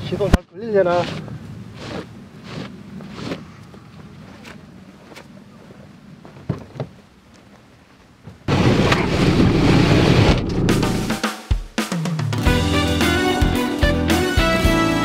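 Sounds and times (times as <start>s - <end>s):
loud music with drums: 10.6s - 15.0s.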